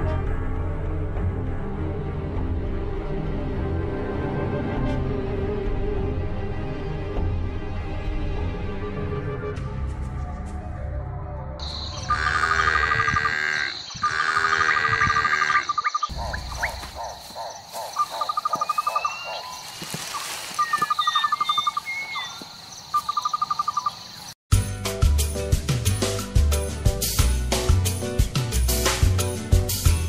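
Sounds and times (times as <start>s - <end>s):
high insect whine: 11.6s - 24.4s
insect trills of rapid pulses: 11.6s - 24.4s
short bird chirps: 18.5s - 23.9s.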